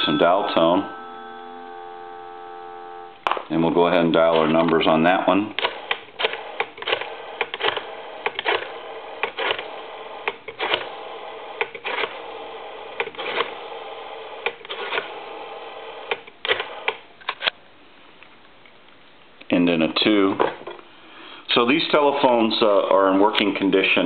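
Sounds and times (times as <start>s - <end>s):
steady telephone line tone: 0.0s - 5.2s, 5.8s - 16.9s.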